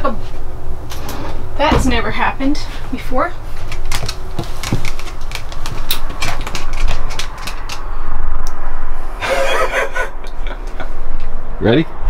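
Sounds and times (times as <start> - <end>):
steady low hum: 0.0 - 12.0
objects clicking and knocking: 3.6 - 7.9.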